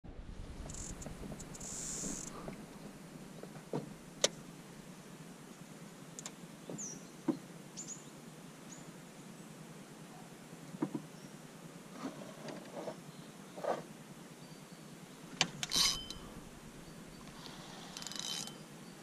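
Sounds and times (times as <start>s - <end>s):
insect buzz: 0.6s - 2.6s, 15.6s - 19.0s.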